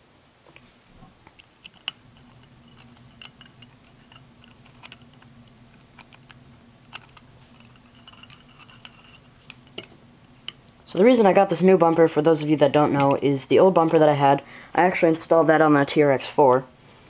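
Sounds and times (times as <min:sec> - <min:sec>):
faint low hum: 0:00.0 - 0:17.0
screws and screwdriver clicking: 0:01.4 - 0:09.9.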